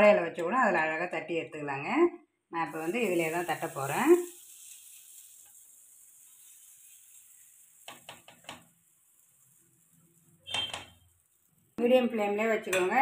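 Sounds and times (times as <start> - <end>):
faint hiss: 2.7 - 12.6.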